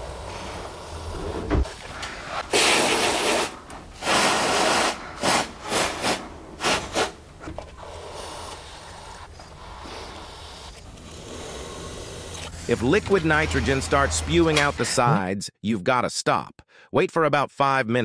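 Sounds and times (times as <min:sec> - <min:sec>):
aerosol spray hissing: 0:02.5 - 0:07.2, 0:07.9 - 0:10.7.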